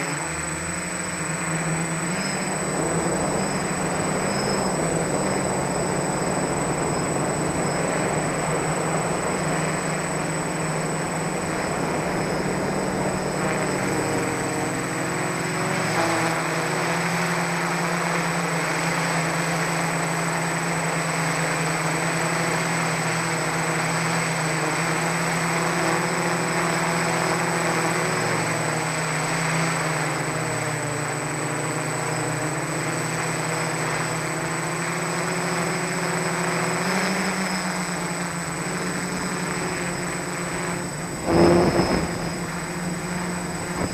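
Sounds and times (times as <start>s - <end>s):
quadcopter motors droning: 0.0s - 43.9s
thin high whine: 0.0s - 43.9s.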